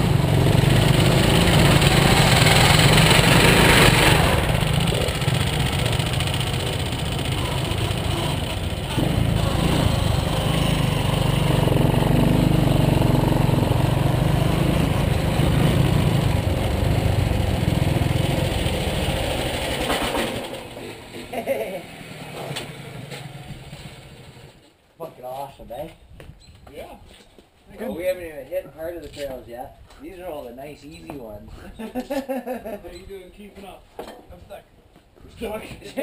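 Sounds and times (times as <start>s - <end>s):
single-cylinder engine running: 0.0s - 20.9s.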